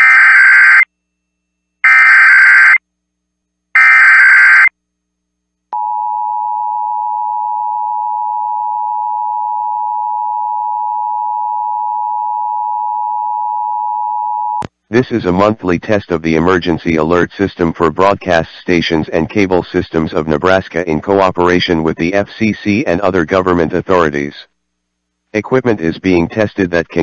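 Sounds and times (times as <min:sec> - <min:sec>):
two-tone alert signal: 0:03.8 - 0:04.7.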